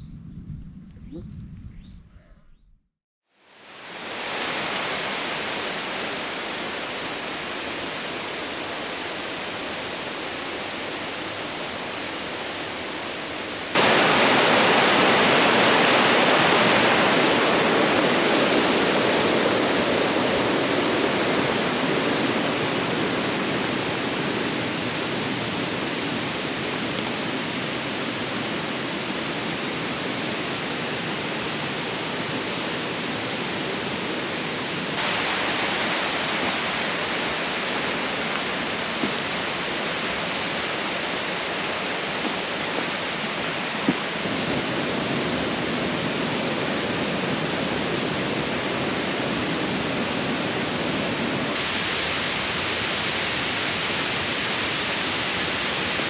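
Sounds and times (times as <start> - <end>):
flowing water rushing: 3.4 - 56.0.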